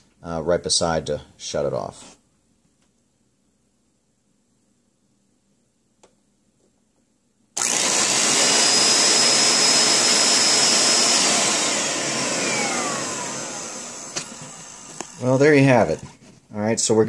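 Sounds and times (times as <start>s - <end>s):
spot cleaner motor whooshing: 7.6s - 16.1s.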